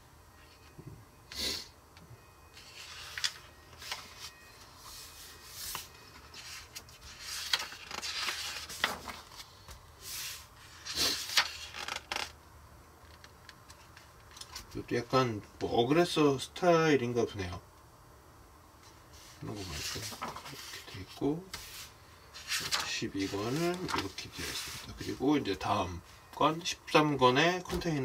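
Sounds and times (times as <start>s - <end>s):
magazine pages rustling: 5.0s - 12.3s, 19.4s - 25.2s.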